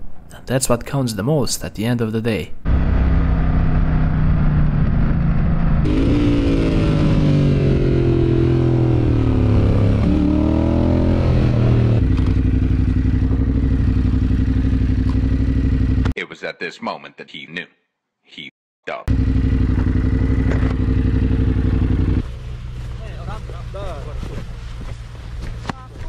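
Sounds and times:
motorcycle engine revving and idling: 2.7s - 16.2s, 19.1s - 26.0s.

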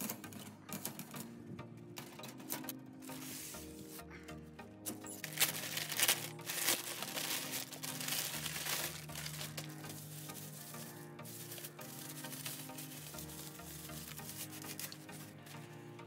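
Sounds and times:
background music of held notes: 0.0s - 16.0s
plastic bag crinkling: 5.1s - 15.3s.

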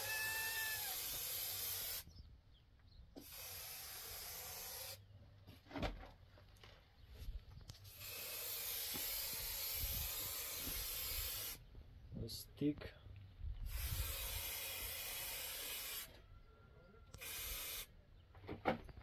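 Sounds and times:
spray-paint can hissing: 3.2s - 5.0s, 7.9s - 11.6s, 13.7s - 16.1s, 17.2s - 17.9s.

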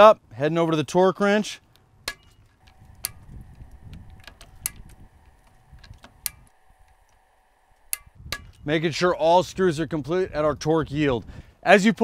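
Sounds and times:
torque wrench clicking: 2.6s - 7.2s.

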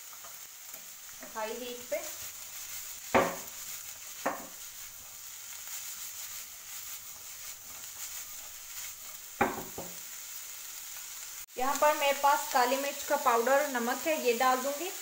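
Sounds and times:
food sizzling in a wok: 0.0s - 15.0s
wok knocking on burner: 3.0s - 3.6s, 4.2s - 4.6s, 9.4s - 10.0s.

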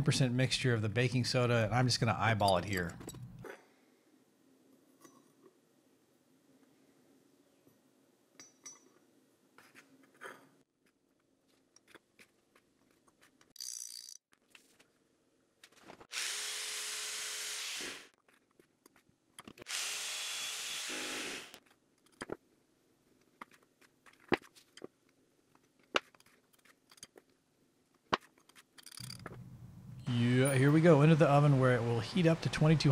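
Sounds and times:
handheld power tool running: 16.1s - 18.1s, 19.7s - 21.6s.

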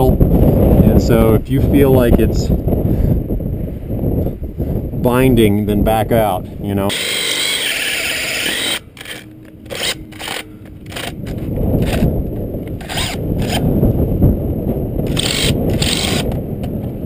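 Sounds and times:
low hum: 6.3s - 17.0s
power drill grinding into steel: 6.9s - 11.2s, 15.1s - 16.3s.

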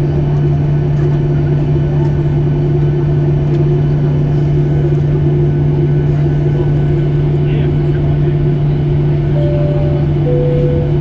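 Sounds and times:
cabin air-conditioning hum: 0.0s - 11.0s
low tone: 9.2s - 11.0s.

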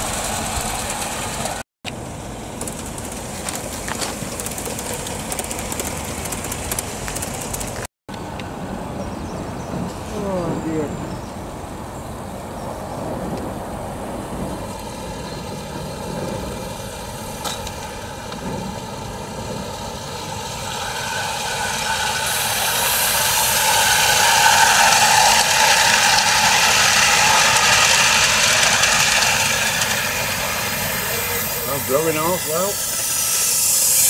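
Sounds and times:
steam locomotive hissing: 0.0s - 1.6s, 9.7s - 34.0s.

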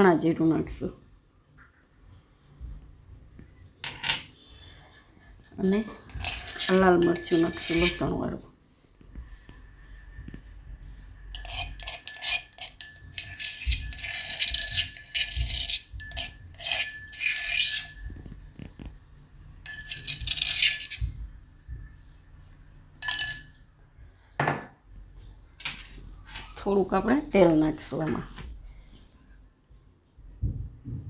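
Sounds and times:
spoon scraping and tapping steel dishes: 3.8s - 8.1s, 11.3s - 18.9s, 19.6s - 21.2s, 23.0s - 23.6s, 25.6s - 26.6s.

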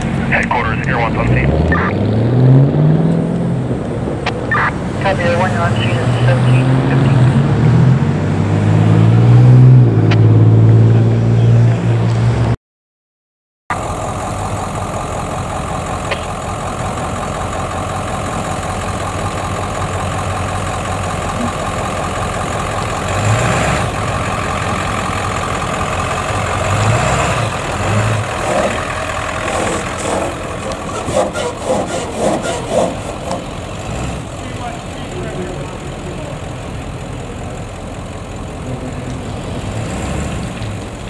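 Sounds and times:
truck engines idling: 0.0s - 9.0s, 13.7s - 41.0s.

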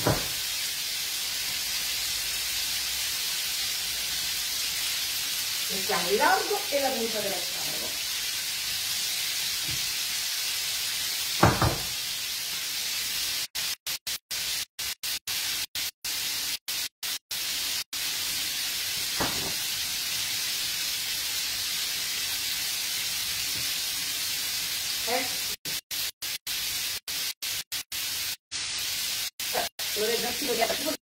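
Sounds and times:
food sizzling in frying pans: 0.0s - 31.0s
sharp knock: 11.4s - 11.9s.

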